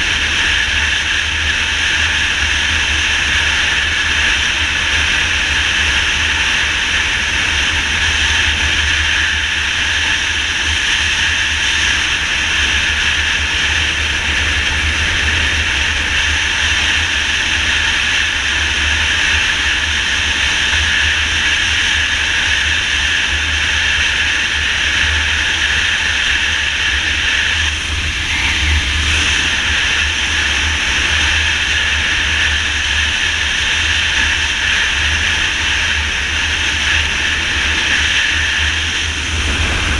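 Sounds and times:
wind buffeting microphone: 0.0 - 39.9
road noise: 26.0 - 39.9.

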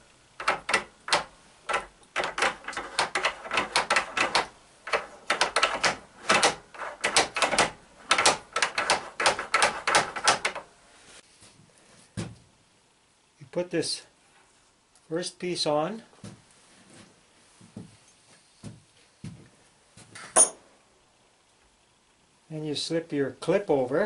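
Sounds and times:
rapid metallic clicking: 0.4 - 10.6.

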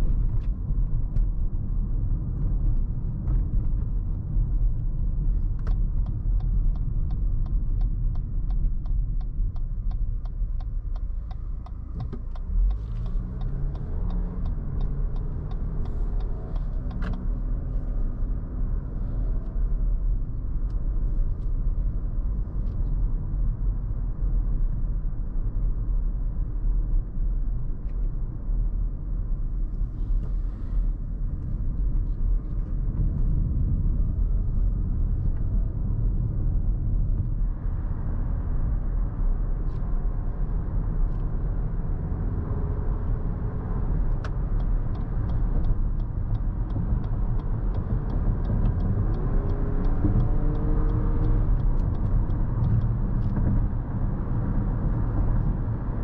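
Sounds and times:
car engine and tyre rumble: 0.0 - 56.0
turn signal ticking: 5.0 - 20.8, 42.4 - 56.0.

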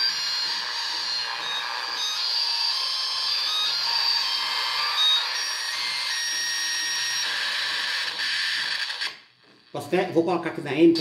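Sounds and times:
radio static hiss: 7.5 - 11.0.

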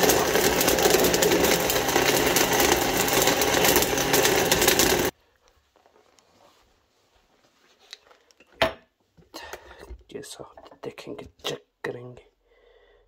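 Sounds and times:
electric blender running: 0.0 - 5.1.

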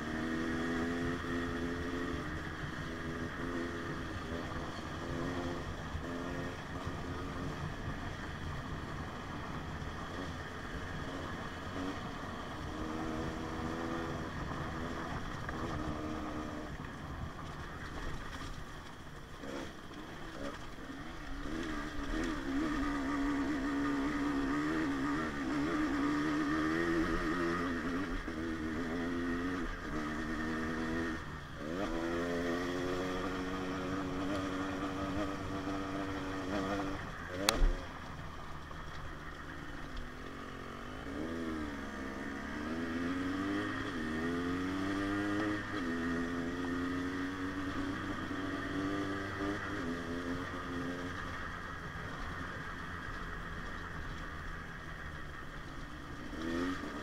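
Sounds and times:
wind and trail noise: 0.0 - 57.0
dirt bike engine revving: 19.4 - 37.9.

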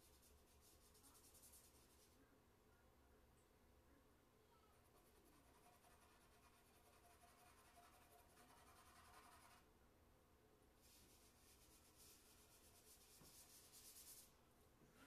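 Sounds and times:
charcoal scratching on paper: 0.0 - 2.2, 4.8 - 9.6, 10.8 - 14.3.

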